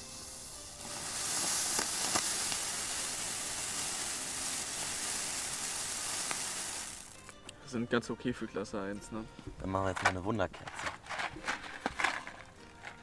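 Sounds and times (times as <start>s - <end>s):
fireworks fountain fizzing hiss: 0.0s - 7.3s
sharp crackles: 0.8s - 7.4s.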